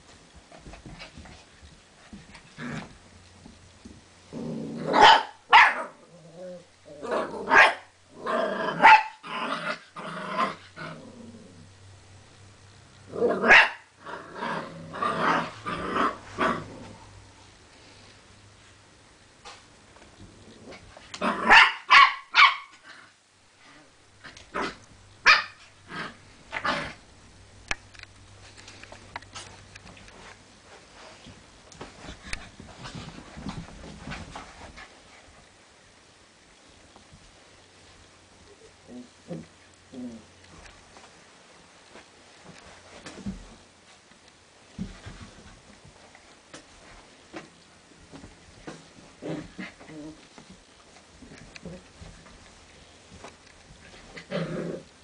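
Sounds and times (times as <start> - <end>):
faint scuffling: 27.8 - 35.6, 40.5 - 54.3.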